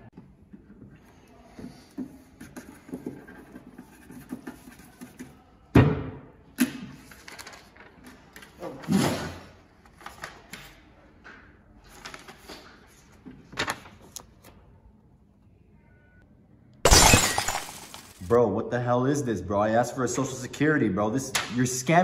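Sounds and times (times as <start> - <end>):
paper rustling: 7.0 - 8.0.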